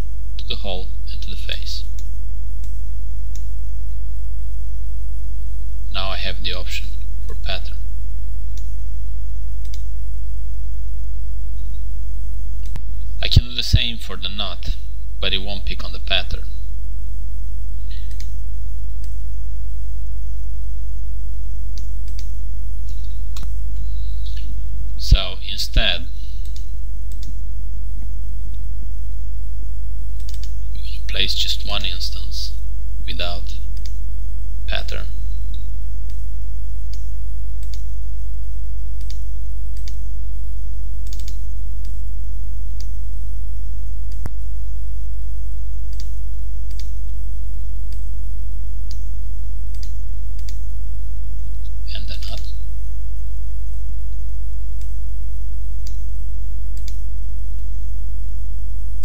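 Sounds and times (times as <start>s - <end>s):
low electrical hum: 0.0s - 59.0s
computer mouse clicks: 9.6s - 9.9s, 18.0s - 18.4s, 21.8s - 23.5s, 26.4s - 27.4s, 30.2s - 30.6s, 36.9s - 37.9s, 39.0s - 39.2s, 39.8s - 40.0s, 41.0s - 42.0s, 45.9s - 46.1s, 46.7s - 47.0s, 49.7s - 50.6s, 56.8s - 57.0s.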